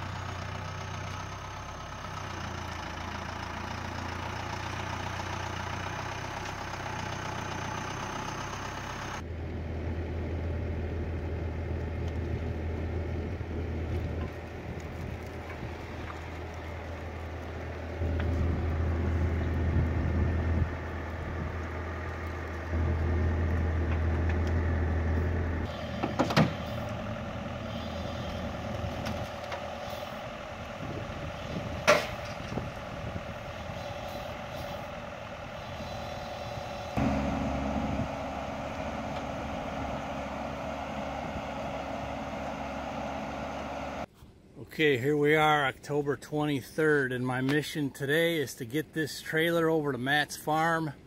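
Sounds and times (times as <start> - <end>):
diesel engine running: 0.0 - 44.1
hydraulics working under load: 0.0 - 44.1.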